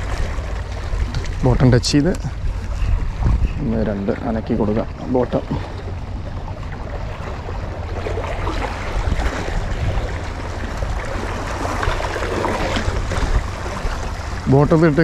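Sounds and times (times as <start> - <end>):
wind rumbling on microphone: 0.0 - 15.0
waves washing against rocks: 7.0 - 15.0.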